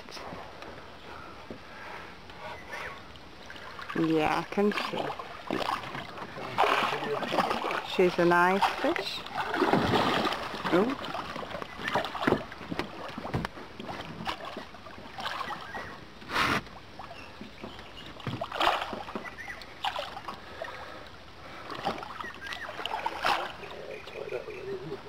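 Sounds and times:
water splashing against boat: 0:00.0 - 0:25.0
knocks and thuds on hull: 0:08.6 - 0:15.1, 0:17.4 - 0:19.4.

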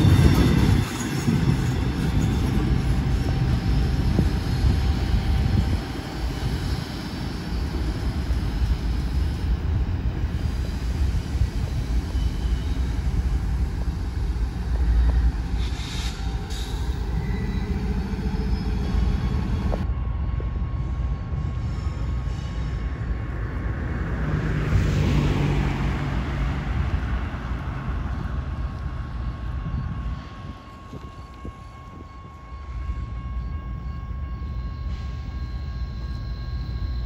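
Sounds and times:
train wheel squeal: 0:00.0 - 0:23.9, 0:28.6 - 0:37.0
freight train rumbling past: 0:00.0 - 0:37.0
car passing: 0:23.6 - 0:28.1.

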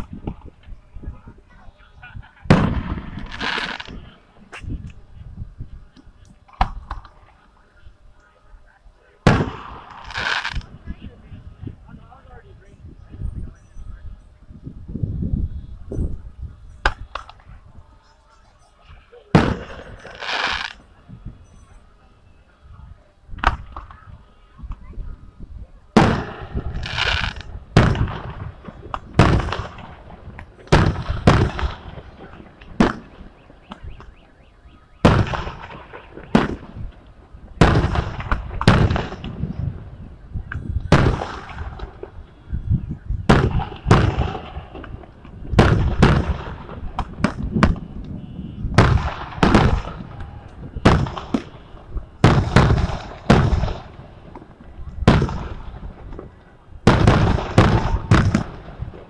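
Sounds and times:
fireworks booming: 0:00.0 - 0:07.4, 0:09.1 - 0:12.4, 0:19.2 - 0:21.4, 0:25.9 - 0:59.0.

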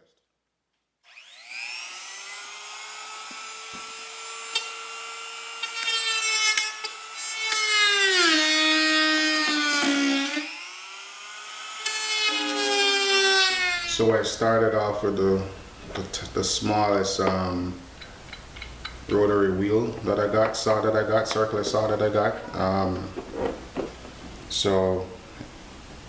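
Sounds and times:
rotary tool cutting plastic: 0:01.1 - 0:14.0.

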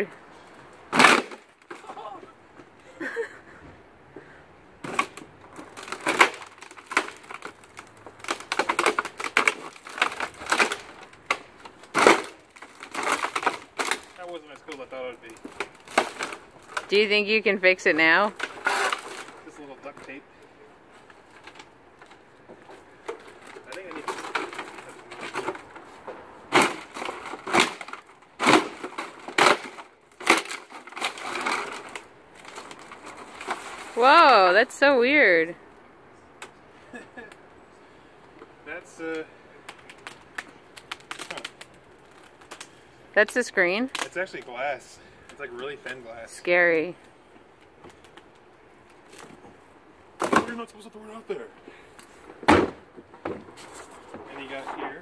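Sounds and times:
plastic and glass cracking: 0:00.9 - 0:02.1, 0:04.8 - 0:17.0, 0:18.2 - 0:20.2, 0:23.0 - 0:25.9, 0:26.5 - 0:34.1, 0:39.6 - 0:44.5.

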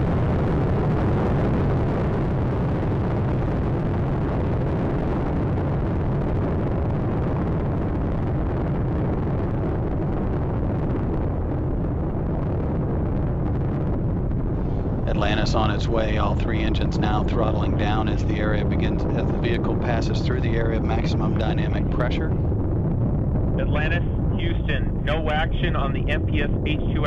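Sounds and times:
rocket engines deep roar: 0:00.0 - 0:27.0.

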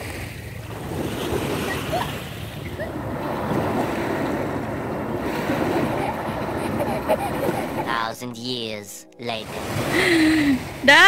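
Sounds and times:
wind buffeting microphone: 0:00.0 - 0:08.0
waves washing on beach: 0:00.0 - 0:11.0.

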